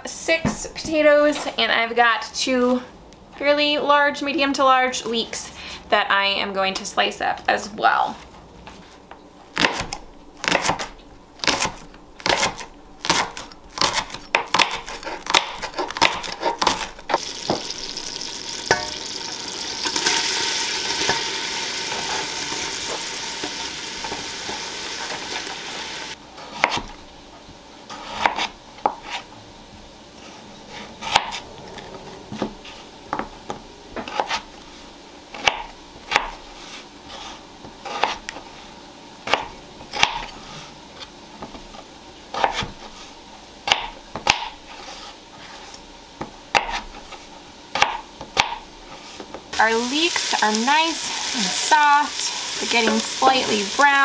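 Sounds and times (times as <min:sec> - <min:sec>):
knife cutting raw potatoes: 0:09.5 - 0:17.8, 0:26.4 - 0:27.0, 0:27.9 - 0:29.3, 0:35.3 - 0:38.4, 0:39.3 - 0:40.4, 0:42.3 - 0:45.8, 0:46.5 - 0:48.6
knife chopping on cutting board: 0:09.6 - 0:17.7, 0:26.5 - 0:26.9, 0:28.0 - 0:29.2, 0:37.9 - 0:38.2, 0:42.3 - 0:42.9, 0:43.7 - 0:44.6, 0:46.2 - 0:47.0, 0:47.7 - 0:48.6
loud sizzle in pot: 0:16.8 - 0:26.2, 0:49.5 - 0:54.0.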